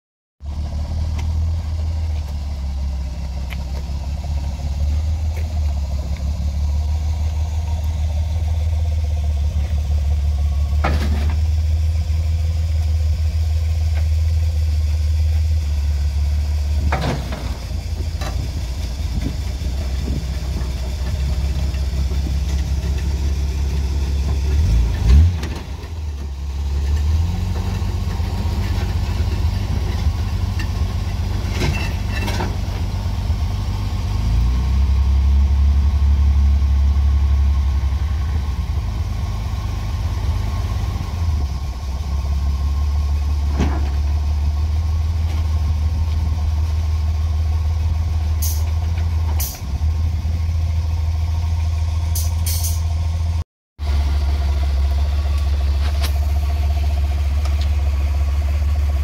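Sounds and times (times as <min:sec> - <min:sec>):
truck engine running: 0:00.4 - 0:59.0
flatbed dragging onto truck: 0:09.6 - 0:11.7, 0:16.8 - 0:33.0, 0:43.2 - 0:44.4
sharp metallic clanks: 0:52.1 - 0:52.9.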